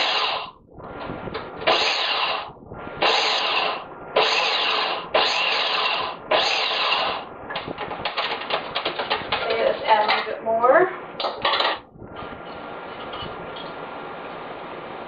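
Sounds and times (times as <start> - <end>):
food processor chopping: 3.0 - 7.2.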